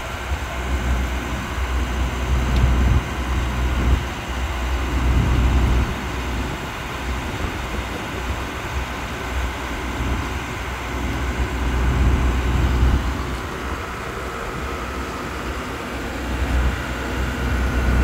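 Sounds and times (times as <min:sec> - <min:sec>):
low machinery rumble: 0:00.0 - 0:18.0
wind buffeting microphone: 0:00.0 - 0:18.0.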